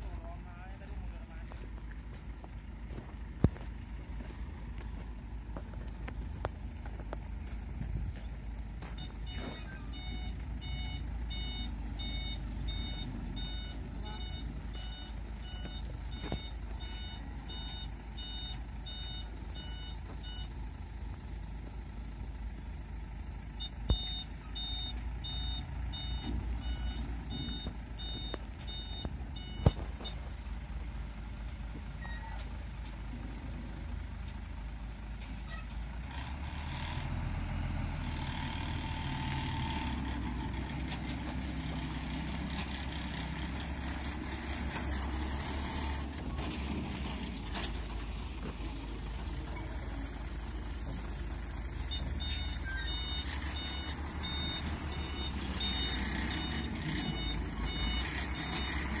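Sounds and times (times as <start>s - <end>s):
diesel truck engine running: 0.0s - 59.0s
electronic vehicle beeper: 8.9s - 20.6s, 23.6s - 30.5s, 31.4s - 32.5s, 51.8s - 59.0s.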